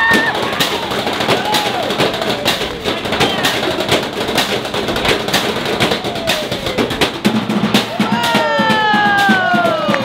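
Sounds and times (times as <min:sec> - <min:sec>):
drumsticks beating metal trash cans: 0:00.0 - 0:09.9.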